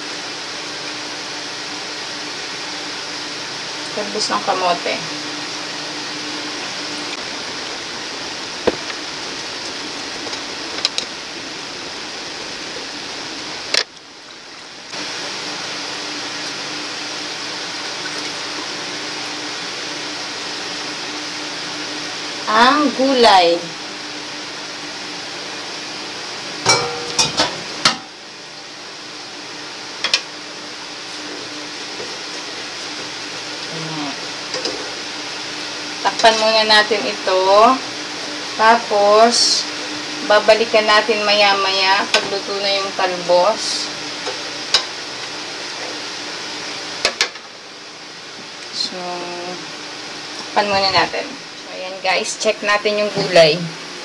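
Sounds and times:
metal pot tapping and clinking: 26.7 - 28.0.

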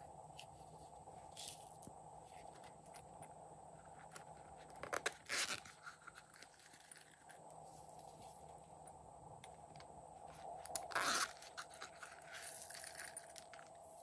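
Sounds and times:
rattling rustle of contents: 3.8 - 8.7, 10.3 - 14.0.

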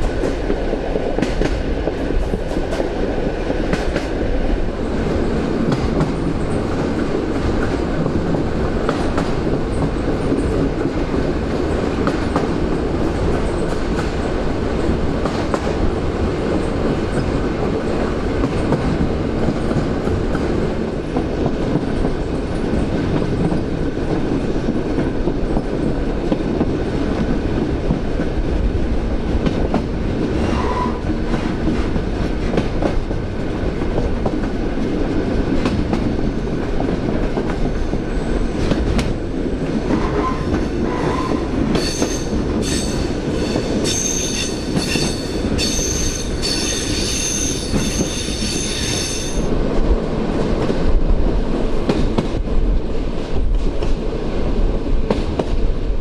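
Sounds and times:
rail-joint clicks: 0.0 - 4.3, 5.6 - 15.8, 29.4 - 34.9, 35.5 - 38.0, 38.6 - 49.5, 51.8 - 52.4, 55.1 - 55.6
train running rumble: 0.0 - 56.0
wheel flange squeal: 40.2 - 49.4.

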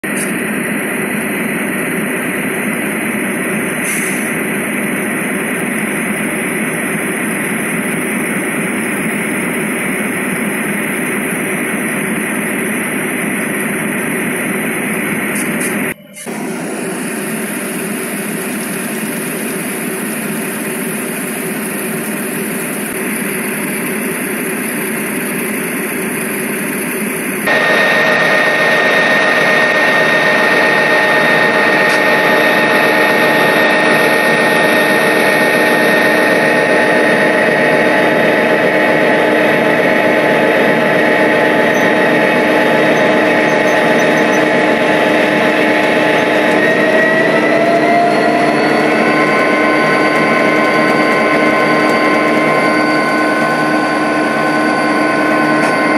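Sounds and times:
locomotive high whine: 0.0 - 55.9
model train rolling on track: 0.6 - 55.9.

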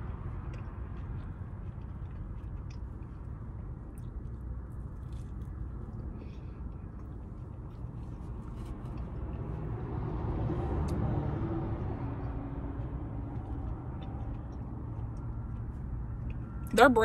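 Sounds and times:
faint chewing: 0.0 - 16.7
low traffic rumble: 0.0 - 17.0
vehicle passing: 0.0 - 17.0.

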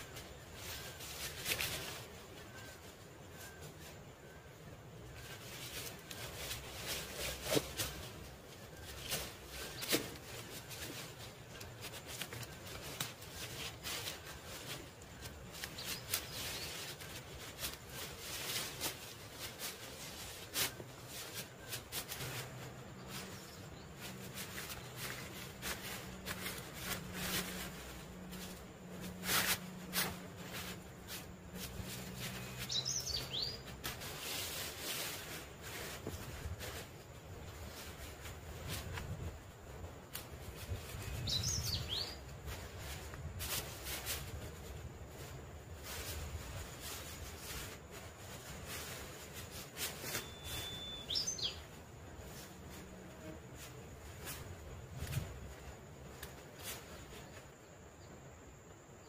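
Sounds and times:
bird chirping: 0.0 - 20.0, 31.6 - 33.8, 40.7 - 42.6, 50.1 - 51.8
leafy branches rustling: 0.0 - 59.0
twigs crackling: 5.1 - 52.9.

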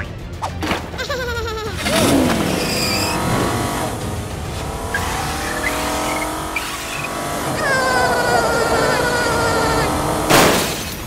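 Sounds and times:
race car engine revving: 1.8 - 10.6.

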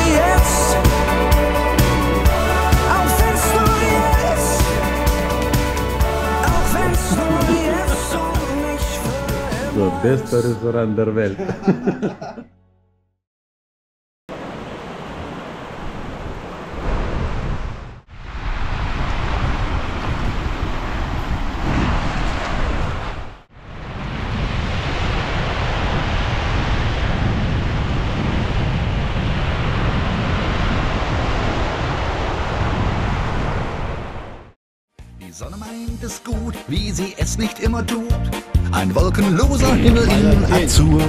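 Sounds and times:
wind rumbling on microphone: 6.4 - 7.9, 14.4 - 34.6, 39.5 - 41.0.

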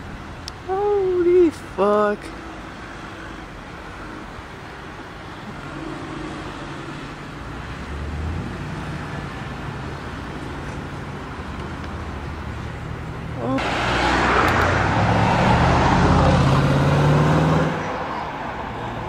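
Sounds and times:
road traffic: 0.0 - 19.0
car engine driving past: 12.0 - 19.0.

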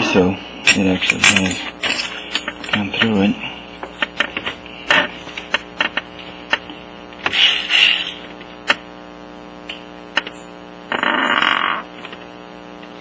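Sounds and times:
short scraping bursts: 7.2 - 8.3.

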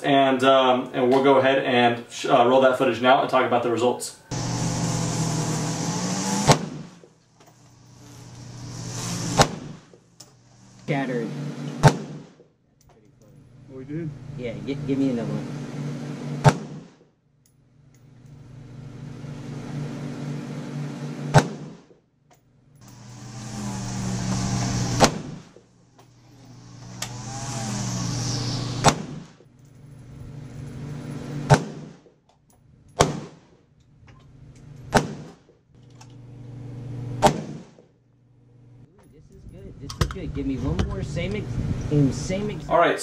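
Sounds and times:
rifle shots: 6.4 - 7.0, 9.4 - 9.9, 11.8 - 12.4, 16.4 - 17.0, 28.8 - 29.3, 31.5 - 32.0, 33.0 - 33.5, 34.9 - 35.4, 37.2 - 37.8
low hum and hiss: 12.8 - 16.2, 38.1 - 43.0.

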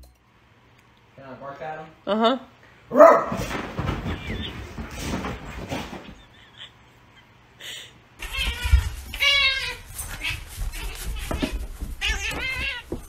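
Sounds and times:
dog tussling on couch: 3.0 - 6.3, 8.2 - 13.0.

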